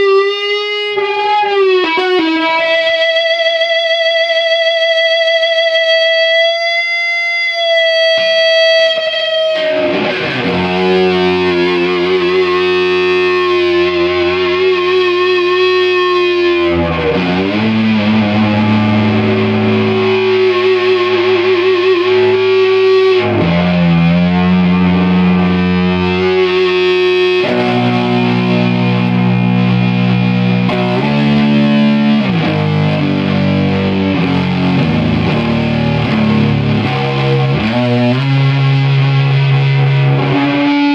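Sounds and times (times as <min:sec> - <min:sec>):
fuzzed electric guitar: 0:00.0 - 0:40.9.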